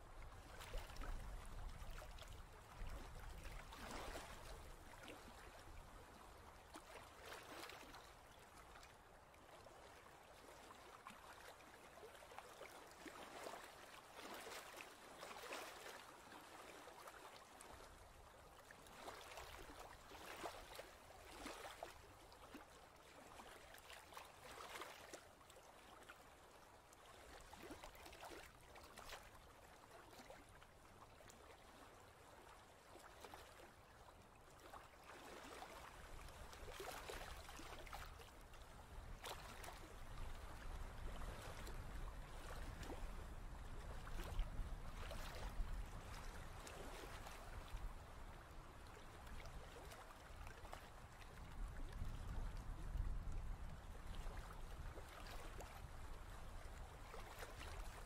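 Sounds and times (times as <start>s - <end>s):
ocean wash: 9.6s - 26.0s, 30.0s - 58.0s.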